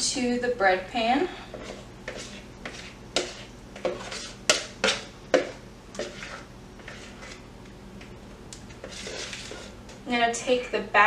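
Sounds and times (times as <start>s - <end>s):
spoon scraping a mixing bowl: 1.5s - 8.1s, 8.7s - 10.0s.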